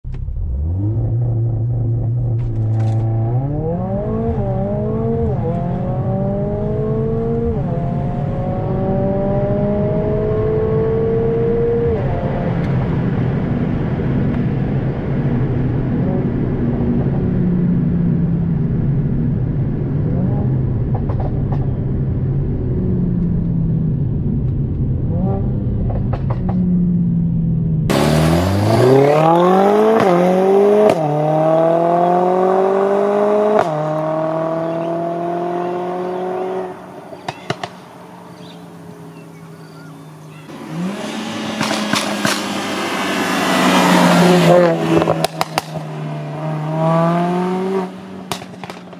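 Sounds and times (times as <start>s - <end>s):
exhaust cracks: 0.0s - 3.6s, 40.3s - 46.1s, 47.9s - 48.9s
car engine accelerating through gear shifts: 0.1s - 14.5s, 27.9s - 48.9s.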